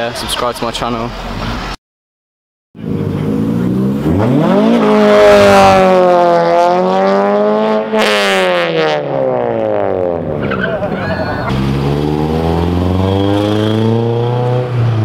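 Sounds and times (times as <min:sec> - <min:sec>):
car engine revving: 0:02.8 - 0:10.8, 0:11.4 - 0:15.0.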